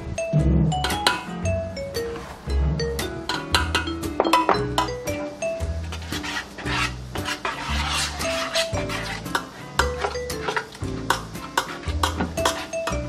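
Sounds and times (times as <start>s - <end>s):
background music: 0.0s - 13.0s
metal spoon scraping metal container: 5.8s - 11.2s, 12.0s - 13.0s.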